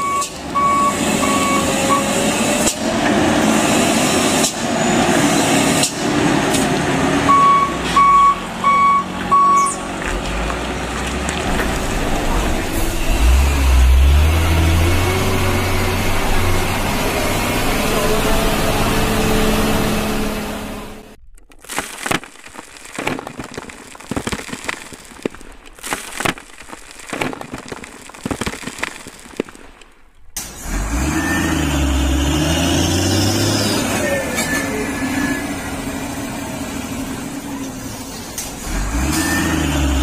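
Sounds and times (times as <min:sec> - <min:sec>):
truck engine drone: 0:00.0 - 0:22.9, 0:30.4 - 0:40.0
stones clattering into plastic toy truck: 0:21.2 - 0:30.1.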